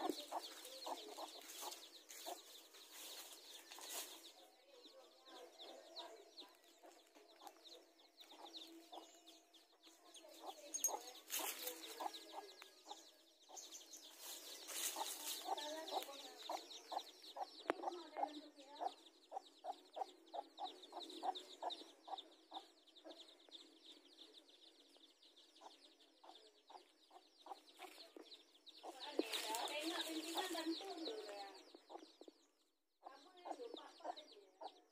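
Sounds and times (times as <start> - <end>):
hen clucking: 0.0 - 2.5
chicks peeping: 0.0 - 32.5, 33.1 - 34.8.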